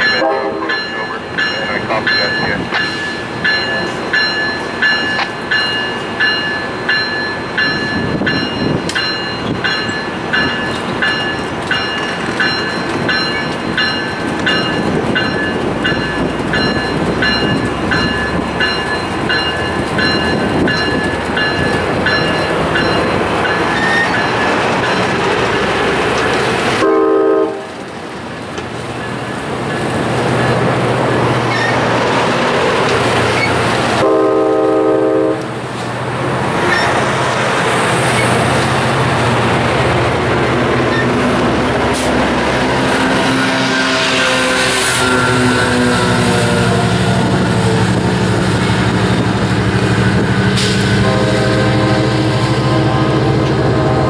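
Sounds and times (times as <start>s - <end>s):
bell ringing: 0.0s - 25.2s
train cars rumbling and clattering: 0.0s - 54.0s.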